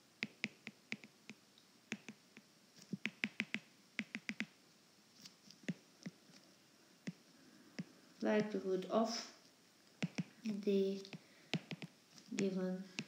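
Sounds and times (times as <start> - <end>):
pen tapping on writing surface: 11.6 - 11.9.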